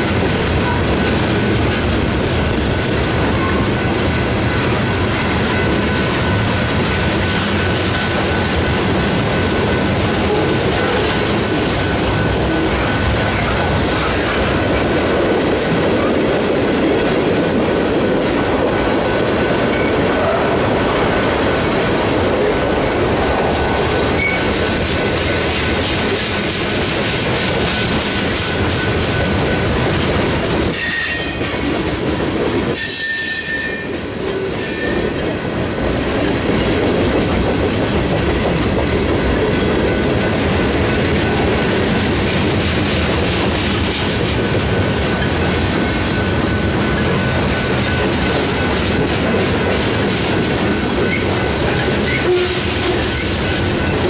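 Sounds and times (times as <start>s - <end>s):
freight train rolling past: 0.0s - 54.0s
high wheel squeals: 30.7s - 31.5s, 32.8s - 34.0s.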